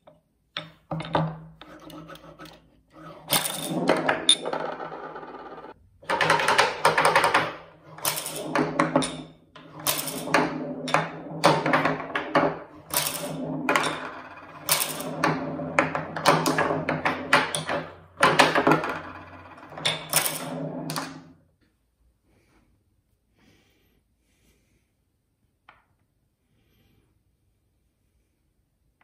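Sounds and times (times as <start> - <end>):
pinballs clacking against wood: 0.0 - 21.3
pinballs rolling on wood: 0.6 - 21.4.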